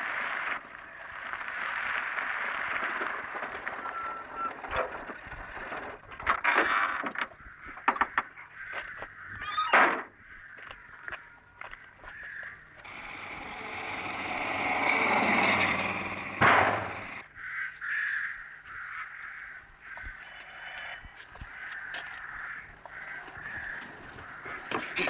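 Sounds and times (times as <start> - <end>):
car engine running: 12.7 - 17.2.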